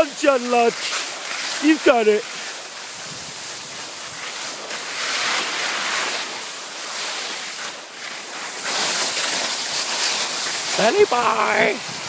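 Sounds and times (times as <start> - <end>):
skis hissing on snow: 0.0 - 12.0
wind rushing over microphone: 2.9 - 4.2, 10.9 - 12.0.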